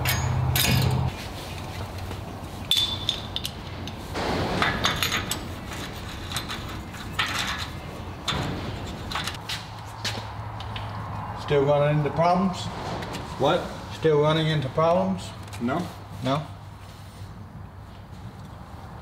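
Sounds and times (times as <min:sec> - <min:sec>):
metallic clinks and knocks: 0:00.0 - 0:01.1, 0:02.7 - 0:04.0.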